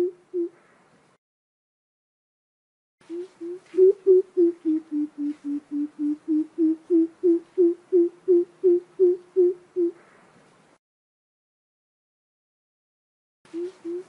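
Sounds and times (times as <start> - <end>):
coucal low hoots: 0.0 - 0.6, 3.0 - 10.1, 13.5 - 14.0.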